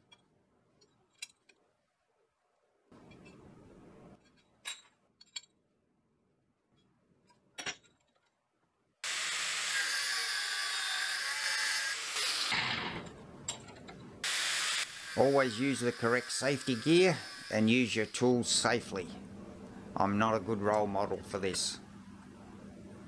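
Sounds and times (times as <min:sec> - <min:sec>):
angle grinder grinding metal: 0:09.0 - 0:13.0, 0:14.2 - 0:18.6.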